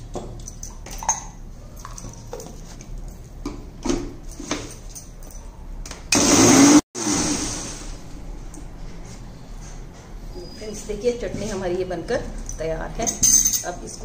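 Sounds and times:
mixer grinder motor: 6.1s - 7.9s.

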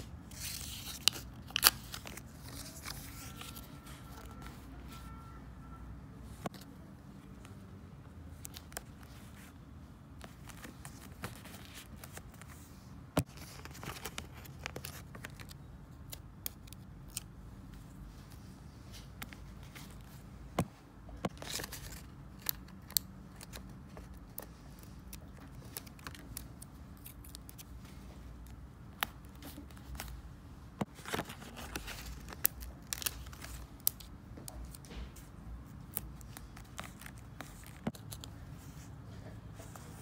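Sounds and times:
paper rustling: 0.3s - 5.0s, 10.2s - 15.6s, 30.8s - 38.9s.

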